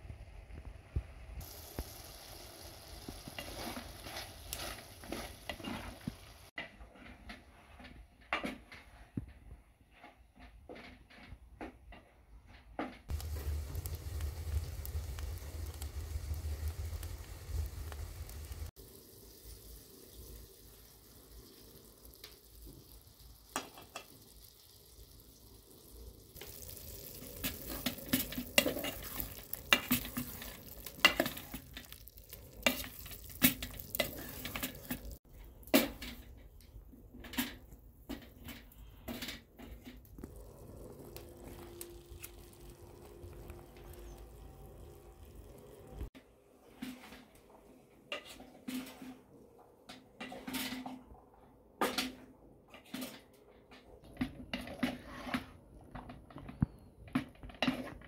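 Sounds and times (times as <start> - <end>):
chicken sizzling in a pot: 0.0 - 6.6, 13.1 - 47.5
spoon scraping a pot: 27.4 - 35.2.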